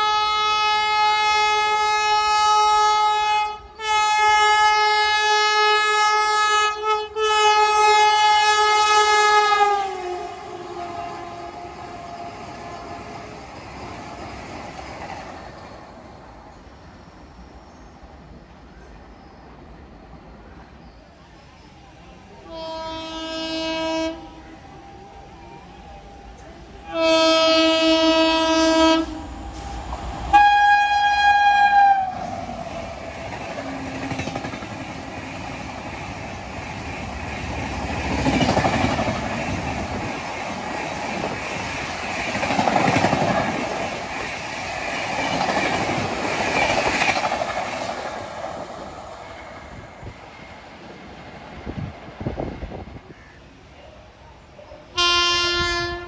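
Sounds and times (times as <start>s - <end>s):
train horn blasts: 0.0s - 13.1s, 22.3s - 32.6s, 54.9s - 56.0s
train rumble and wheel clatter: 0.0s - 56.0s.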